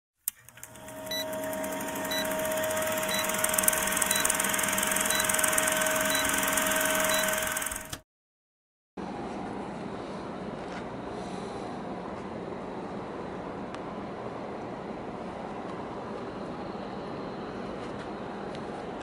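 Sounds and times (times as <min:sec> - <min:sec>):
film projector whirring clatter: 0:00.2 - 0:08.0.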